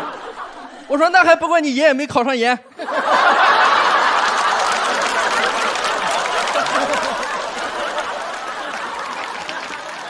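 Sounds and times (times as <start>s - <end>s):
audience laughing: 0.0s - 1.1s, 2.7s - 10.0s
audience applauding: 3.1s - 10.0s.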